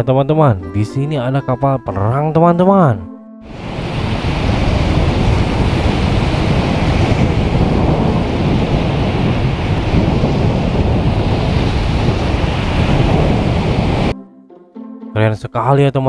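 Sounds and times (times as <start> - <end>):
ship bow wave churning: 3.5 - 14.1
wind on microphone: 3.5 - 14.2.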